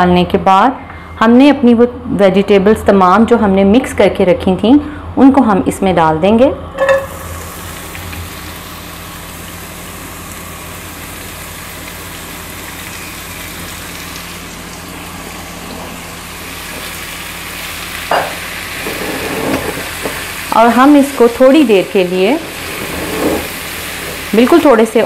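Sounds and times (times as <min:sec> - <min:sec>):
vegetables sizzling in oil: 0:06.9 - 0:25.0
spatula scraping a pan: 0:22.4 - 0:23.6.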